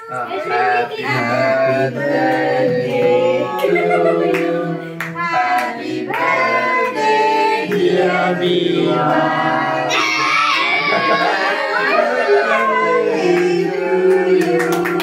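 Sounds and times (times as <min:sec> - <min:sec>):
group singing birthday song: 0:00.0 - 0:15.0
hand claps: 0:14.4 - 0:15.0.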